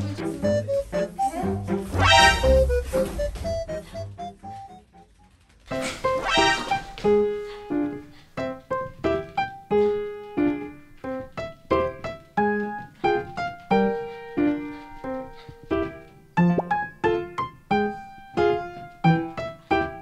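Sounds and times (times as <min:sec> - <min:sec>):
bright keyboard tune: 0:00.0 - 0:05.0.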